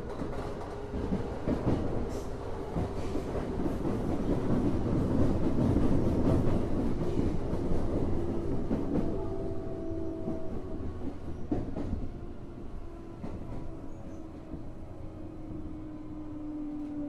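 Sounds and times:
train wheels clacking on rails: 0.0 - 12.3.

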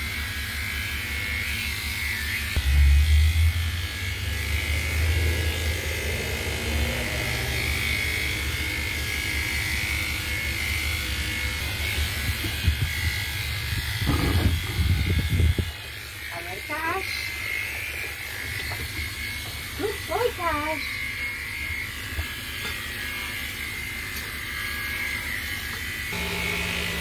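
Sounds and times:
electric clippers buzzing: 0.0 - 27.0.

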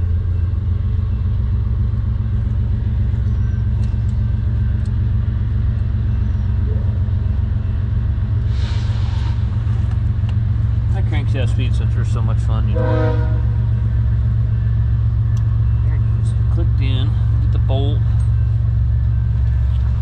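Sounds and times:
low engine rumble: 0.0 - 20.0
brief hiss: 8.5 - 9.4.

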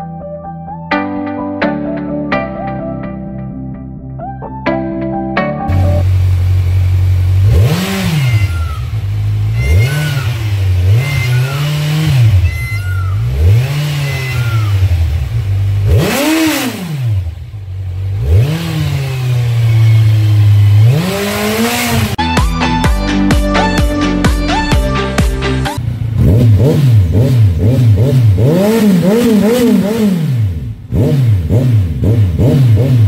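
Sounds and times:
motorcycle engine idling: 5.7 - 18.2, 18.9 - 22.2, 25.8 - 31.0
motorcycle throttle blips: 5.7 - 22.2.

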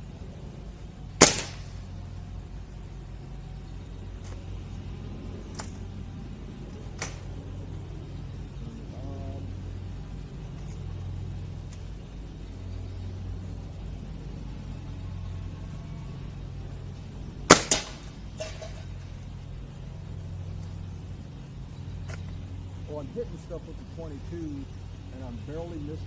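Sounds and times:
air rifle shot cracking: 1.2 - 1.9, 17.5 - 18.2.

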